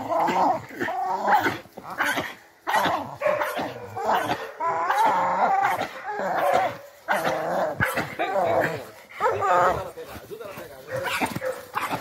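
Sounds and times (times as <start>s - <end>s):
dogs barking and whining: 0.0s - 10.0s, 10.8s - 12.0s.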